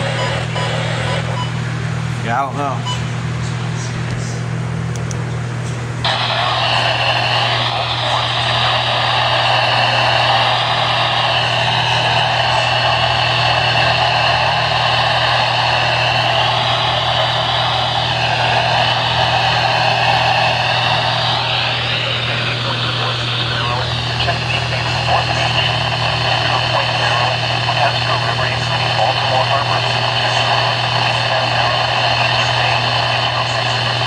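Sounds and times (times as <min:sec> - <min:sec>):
steady low hum: 0:00.0 - 0:34.0
radio static hissing: 0:06.0 - 0:34.0.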